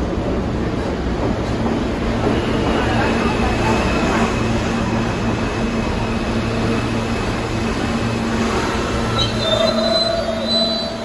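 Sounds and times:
subway train rumbling: 0.0 - 11.0
train wheels squealing: 8.8 - 11.0.

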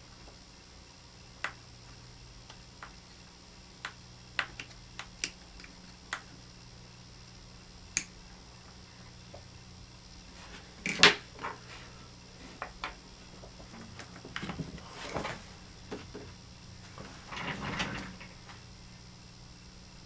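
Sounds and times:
tools and plastic parts clattering: 10.8 - 11.5.

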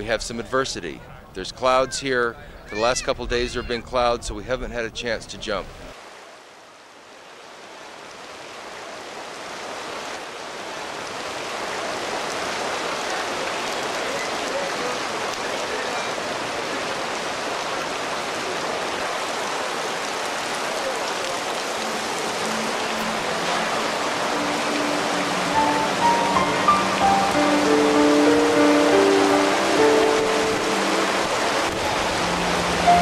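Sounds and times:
heavy rain pouring: 7.3 - 33.0.

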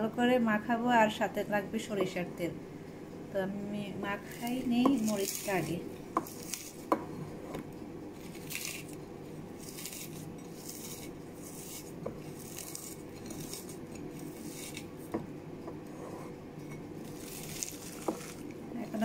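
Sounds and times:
fingers rubbing chillies in a bowl: 4.2 - 7.4, 8.2 - 15.1, 17.0 - 19.0.

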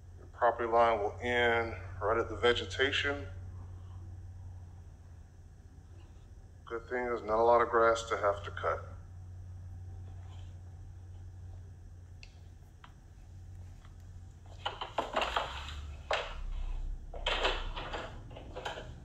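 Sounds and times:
low steady hum: 0.0 - 19.0
clattering knocks and rustles: 13.7 - 19.0.

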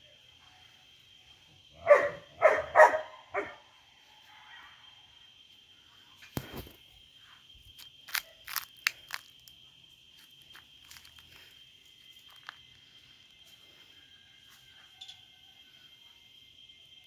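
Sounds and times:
high-pitched insect trill: 0.0 - 17.0
footsteps crunching on dry leaves: 7.8 - 9.5, 10.2 - 12.7.

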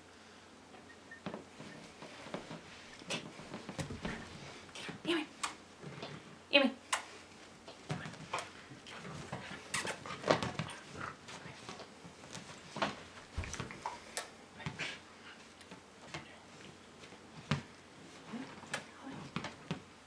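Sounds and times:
dog paws tapping and scuffing: 1.3 - 4.6, 7.2 - 19.9.

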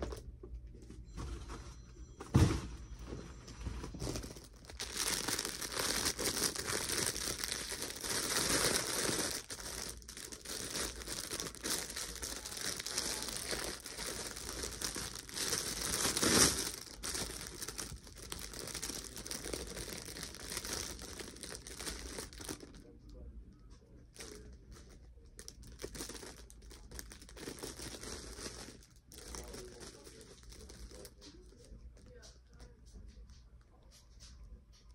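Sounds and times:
plastic bag crinkling: 3.5 - 23.0, 24.1 - 32.1.

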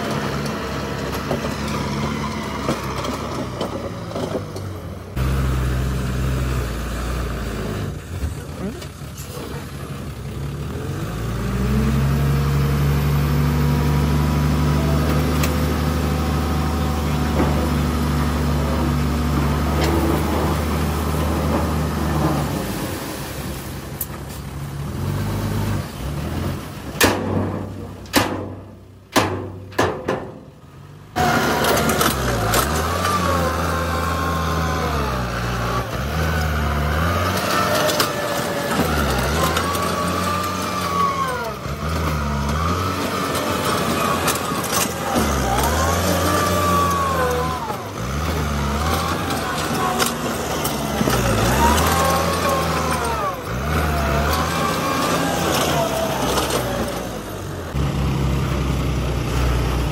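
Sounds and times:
diesel truck engine revving: 0.0 - 29.2, 30.7 - 59.9
tractor engine revving: 0.0 - 59.9
dirt dumping from truck bed: 10.8 - 30.6, 31.2 - 57.7
sharp knocks: 27.0 - 30.5.

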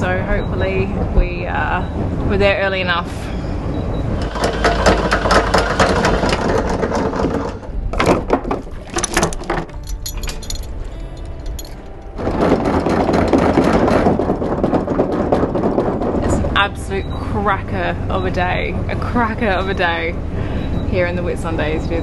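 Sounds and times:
anchor windlass hauling chain: 1.8 - 22.0
anchor chain clattering: 4.2 - 16.3.

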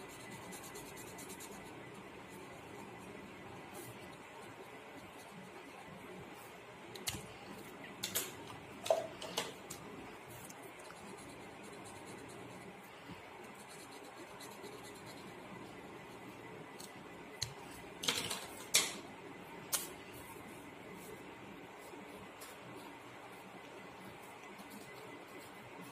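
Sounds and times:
marker scratching on paper: 0.0 - 1.7.

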